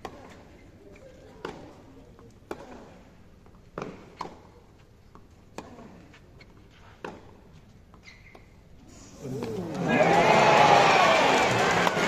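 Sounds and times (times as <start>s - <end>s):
tennis ball bouncing: 1.4s - 2.9s, 3.5s - 5.9s, 6.8s - 8.5s
tennis ball struck by rackets: 3.8s - 4.5s.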